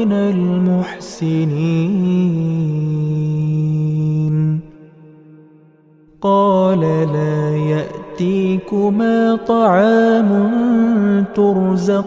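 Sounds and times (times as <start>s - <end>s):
man chanting a recitation: 0.0s - 4.9s, 6.2s - 12.0s.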